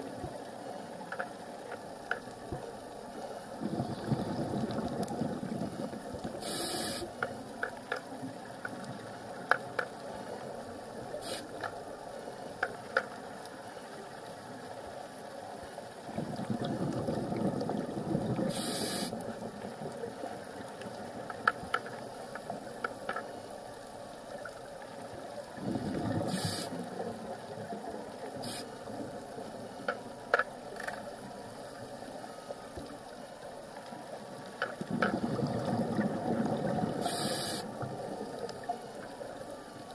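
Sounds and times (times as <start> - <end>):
steady watery hiss: 0.0 - 39.9
faint clicks: 0.1 - 3.4, 4.1 - 15.9, 16.6 - 39.9
exhaled air bubbling: 3.5 - 7.2, 16.0 - 20.2, 25.5 - 27.7, 34.8 - 39.4
regulator hiss: 6.3 - 7.3, 11.1 - 11.7, 18.4 - 19.4, 26.2 - 26.9, 28.4 - 28.9, 37.0 - 37.9.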